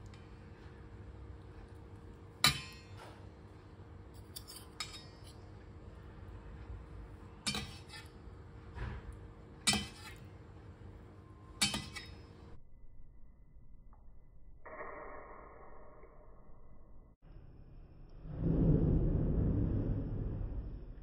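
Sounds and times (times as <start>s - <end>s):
cutlery clinking in metal pan: 4.2s - 5.4s, 7.4s - 8.1s, 9.6s - 10.3s, 11.6s - 12.3s.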